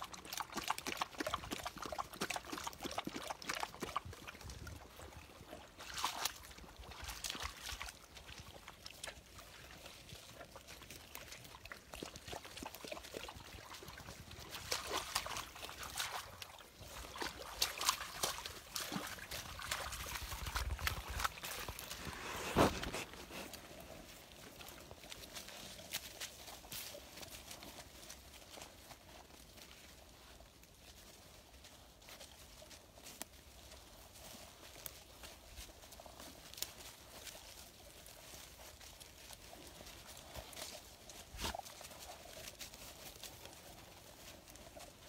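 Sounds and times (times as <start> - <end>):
water sloshing and splashing: 0.0 - 25.3
dogs lapping water: 0.0 - 45.0.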